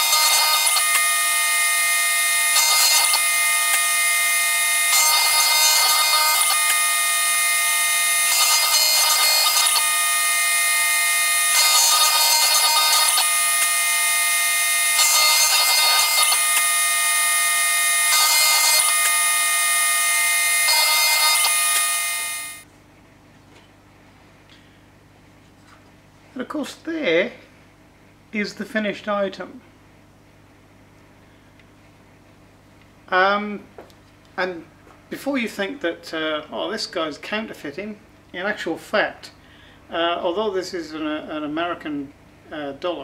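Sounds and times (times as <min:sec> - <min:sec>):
rough metal cutting noise: 0:00.0 - 0:22.7
router spindle whining: 0:00.0 - 0:22.7.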